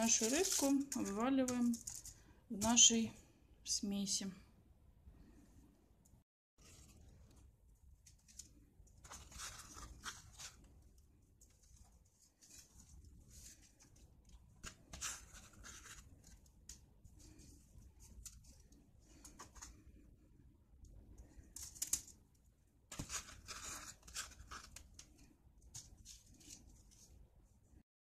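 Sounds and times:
aluminium foil crinkling: 0.0 - 2.9, 21.4 - 22.2, 22.9 - 27.0.

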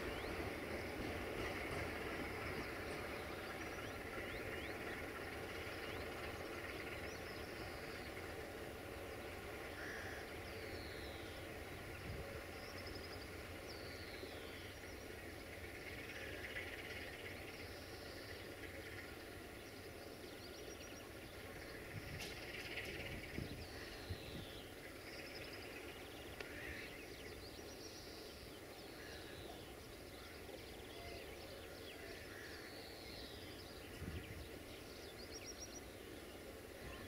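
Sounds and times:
distant diesel locomotive rumble: 0.0 - 37.0.

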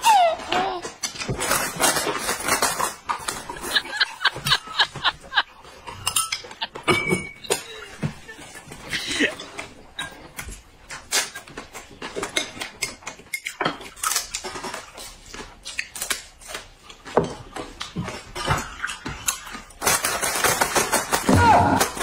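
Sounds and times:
chewing and crunching: 7.5 - 20.5.

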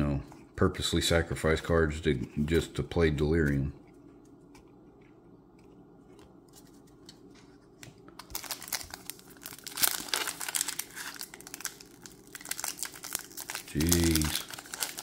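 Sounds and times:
foil wrapper crinkling and tearing: 8.2 - 15.0.

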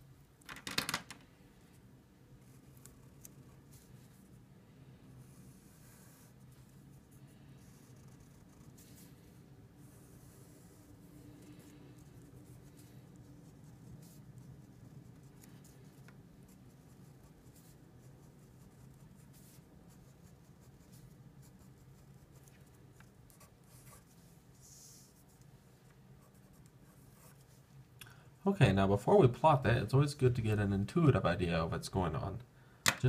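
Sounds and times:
low room hum: 0.0 - 33.0
marker pen scratching on paper: 5.2 - 27.6.

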